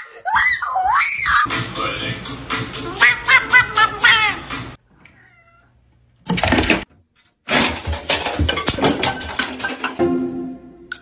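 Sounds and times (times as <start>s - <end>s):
cat meowing: 5.1s - 5.8s.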